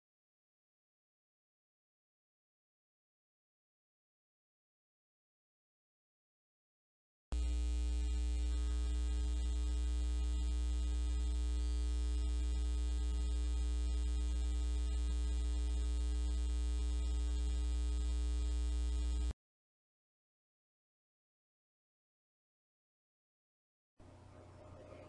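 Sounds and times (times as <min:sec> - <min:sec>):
electrical mains hum: 0:07.3 - 0:19.4, 0:24.0 - 0:25.0.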